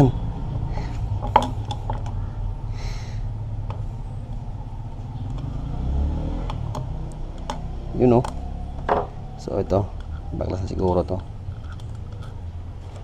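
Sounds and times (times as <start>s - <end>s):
steady low rumble: 0.0s - 5.9s
hex key scraping: 9.9s - 13.0s.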